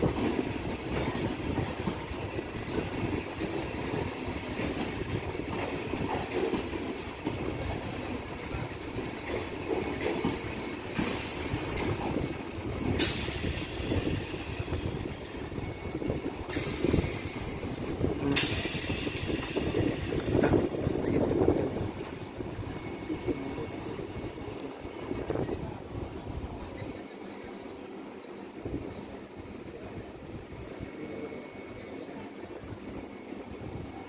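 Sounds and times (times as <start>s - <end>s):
train wheels rumbling and clacking: 0.0s - 26.8s.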